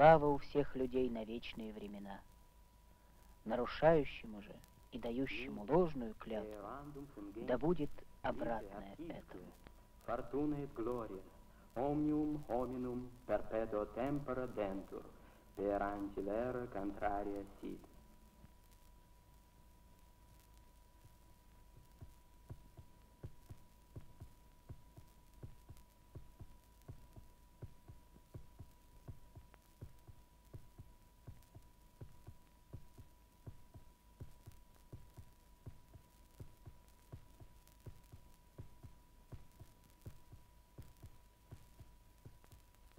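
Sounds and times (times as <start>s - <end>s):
faint steady high tone: 0.0s - 42.9s
faint rapid clicks: 20.0s - 42.9s.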